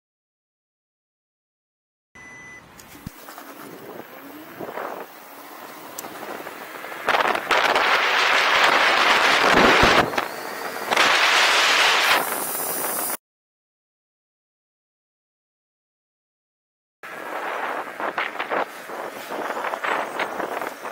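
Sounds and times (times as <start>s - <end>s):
wind rushing over microphone: 3.4s - 13.2s, 17.1s - 20.9s.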